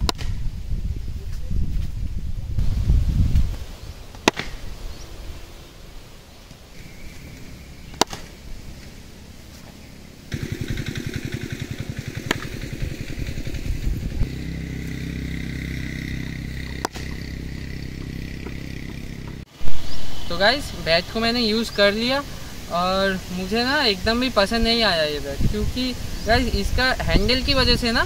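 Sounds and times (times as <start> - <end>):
cricket bat striking tennis ball: 0.0 - 0.4, 4.1 - 4.7, 7.9 - 8.4, 12.2 - 12.7, 16.7 - 19.4
engine running: 6.8 - 23.5.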